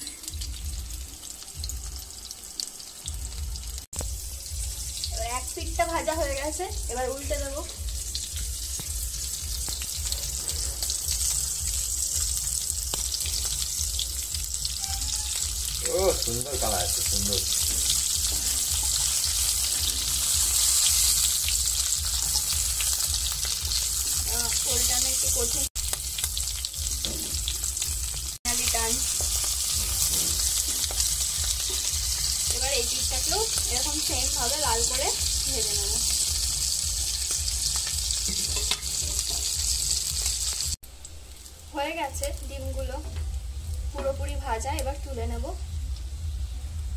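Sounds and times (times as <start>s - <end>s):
food sizzling in hot oil: 0.0s - 46.9s
spatula scraping and tapping pan: 38.2s - 39.4s.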